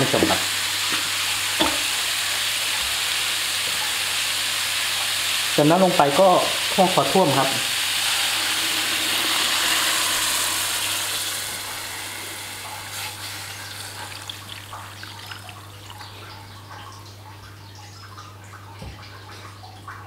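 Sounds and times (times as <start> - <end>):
water sizzling in hot wok: 0.0 - 16.2
bubbling with small pops: 13.9 - 20.0.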